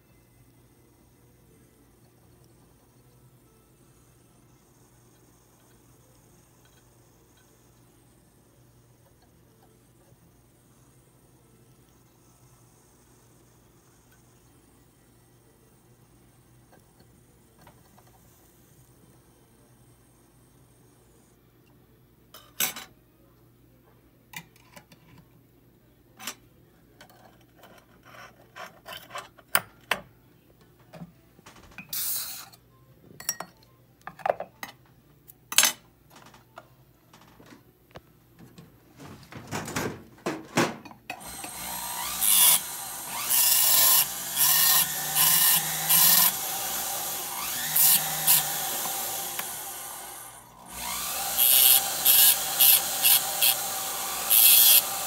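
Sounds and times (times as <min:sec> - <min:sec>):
rotary tool grinding metal: 0:41.2 - 0:55.0.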